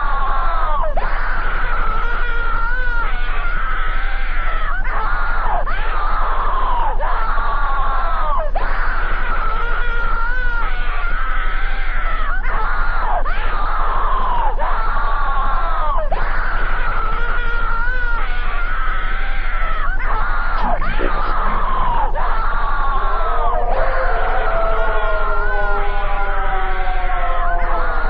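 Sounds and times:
looped scream-like voice: 8.2s - 28.0s
steady low hum: 20.1s - 28.0s.

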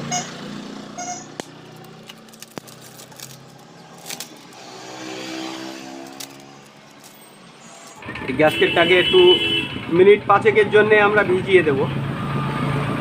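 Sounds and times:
plastic packing crinkling: 1.6s - 4.6s.

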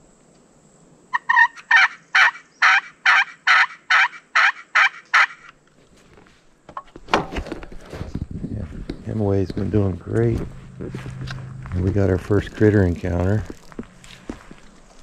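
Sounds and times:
turkey call yelps: 1.1s - 5.5s.

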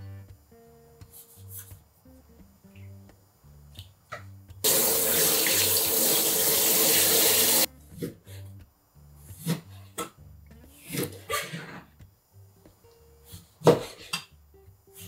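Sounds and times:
tap water running: 4.6s - 7.7s.

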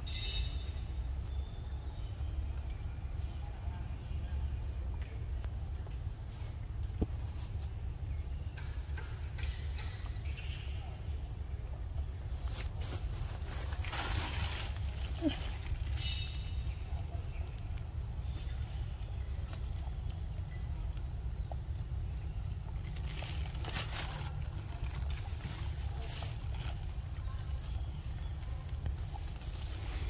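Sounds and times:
insects droning: 0.0s - 30.0s.

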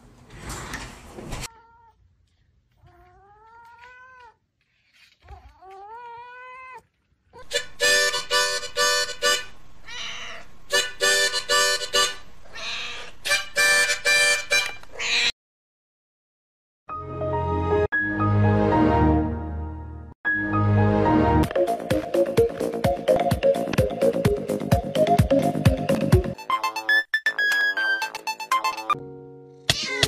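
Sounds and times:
cat meowing: 1.5s - 2.0s, 2.7s - 4.4s, 5.2s - 7.5s, 9.8s - 10.5s, 12.5s - 13.2s, 14.9s - 15.3s
music of short repeated chords: 16.9s - 29.6s.

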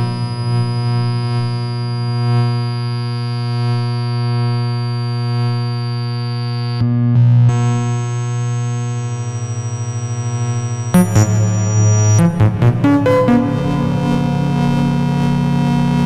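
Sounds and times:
pulsing bass: 10.9s - 16.0s
synthesizer drone chord: 10.9s - 16.0s.

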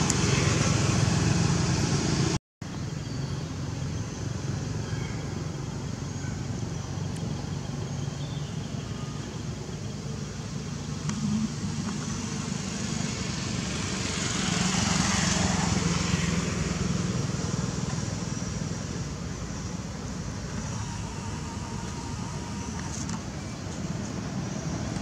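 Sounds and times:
background traffic noise: 0.0s - 25.0s
motor vehicle passing: 11.0s - 18.6s.

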